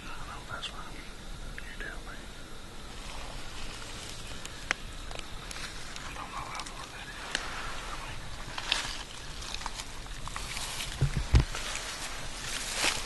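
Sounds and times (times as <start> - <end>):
rustling in dry leaves: 2.8 - 13.0
twigs snapping: 3.6 - 7.5, 8.2 - 13.0.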